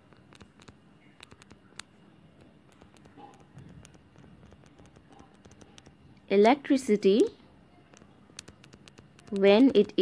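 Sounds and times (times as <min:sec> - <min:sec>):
stylus tapping on tablet screen: 0:00.0 - 0:06.6, 0:07.8 - 0:10.0.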